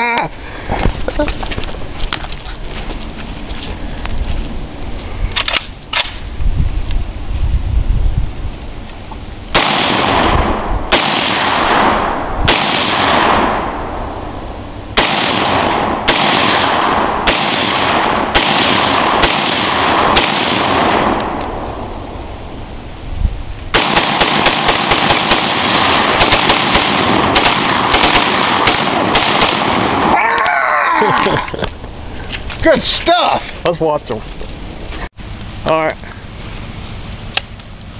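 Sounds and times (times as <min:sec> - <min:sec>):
rapid rifle fire: 0:09.5 - 0:13.8, 0:15.0 - 0:21.4, 0:23.7 - 0:30.1
rifle single shots echoing: 0:09.5 - 0:14.0, 0:15.0 - 0:21.6, 0:23.7 - 0:30.1.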